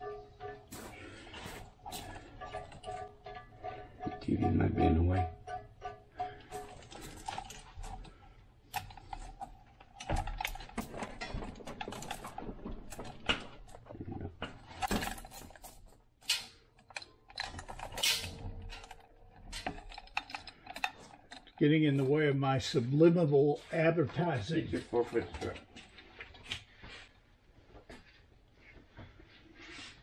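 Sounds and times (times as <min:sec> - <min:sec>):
chain hoist links clinking: 0:05.4 - 0:08.1, 0:14.7 - 0:21.8.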